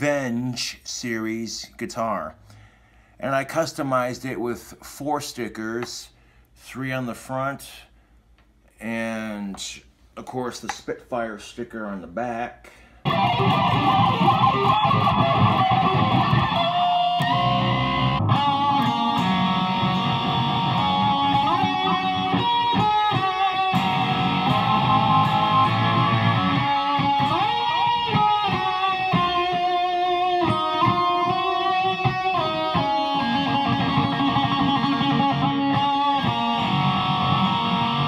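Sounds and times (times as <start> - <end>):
electric guitar melody with slides: 13.1 - 38.0.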